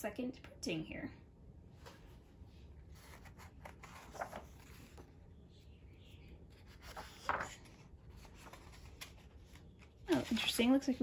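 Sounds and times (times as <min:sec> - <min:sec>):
book pages turning: 0:02.9 - 0:05.2, 0:06.2 - 0:11.0.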